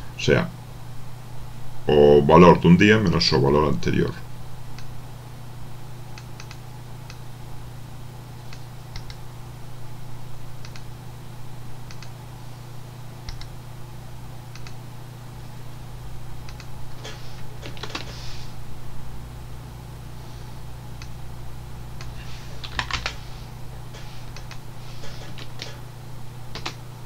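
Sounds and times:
steady low hum: 0.0 - 27.0
computer keyboard clicks: 6.3 - 7.2, 8.5 - 9.2, 10.6 - 10.9, 11.9 - 12.1, 14.5 - 14.8, 16.5 - 16.7, 22.0 - 23.2, 24.3 - 24.6, 26.5 - 26.8.

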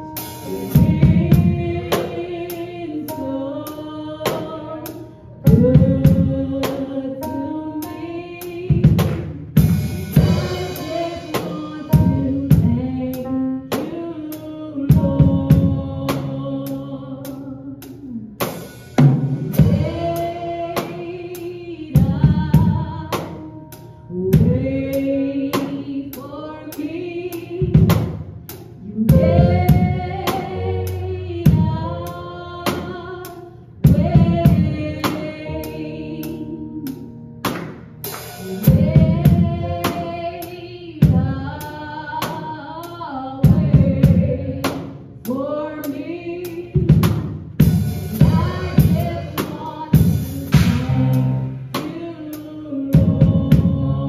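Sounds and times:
person singing: 0.0 - 8.9, 10.2 - 18.4, 28.8 - 33.2, 48.1 - 54.0
drum kit cymbal beat: 0.0 - 54.0
electronic keyboard chords: 29.1 - 33.1.

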